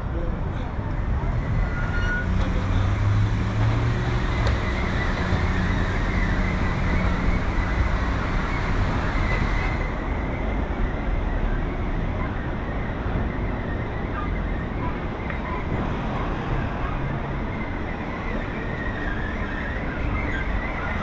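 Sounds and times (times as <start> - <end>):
road traffic noise: 0.0 - 21.0
vehicle engine hum: 0.0 - 21.0.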